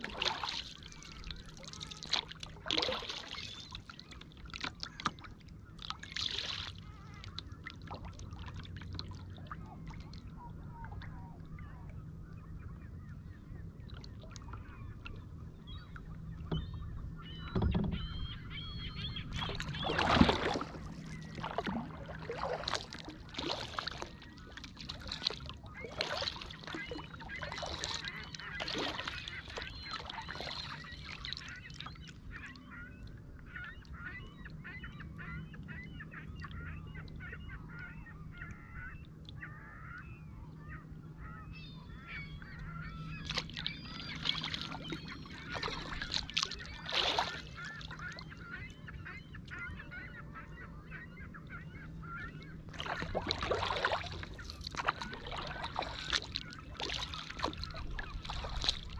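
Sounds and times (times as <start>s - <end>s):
kayak paddle splashing: 0.0s - 11.3s, 17.6s - 32.1s, 43.0s - 49.6s, 52.0s - 58.9s.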